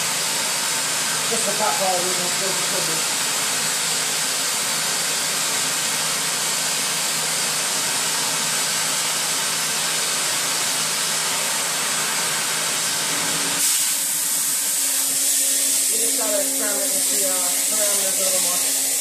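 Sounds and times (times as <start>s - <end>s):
cutting torch flame hissing: 8.6s - 19.0s.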